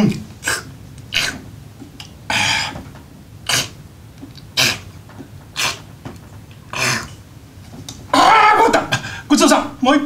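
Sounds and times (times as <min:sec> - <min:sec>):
mouth-made noodle slurping: 0:04.4 - 0:04.9.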